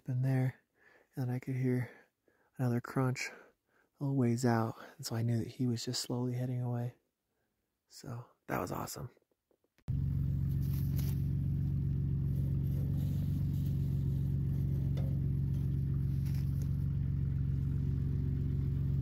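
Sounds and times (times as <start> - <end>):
engine idling: 9.9 - 19.0.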